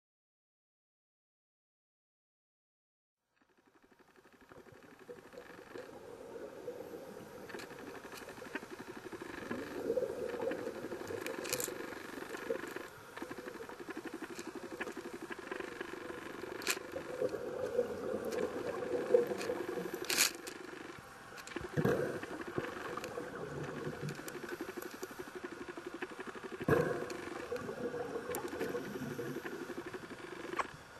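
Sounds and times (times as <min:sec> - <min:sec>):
underwater breathing bubbles: 0:05.8 - 0:20.2, 0:21.6 - 0:25.5, 0:26.6 - 0:30.1.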